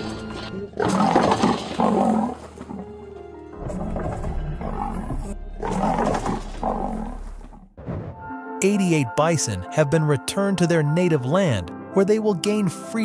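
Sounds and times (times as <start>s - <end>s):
background music: 0.0s - 13.0s
lion roaring: 0.4s - 3.0s, 3.6s - 7.7s.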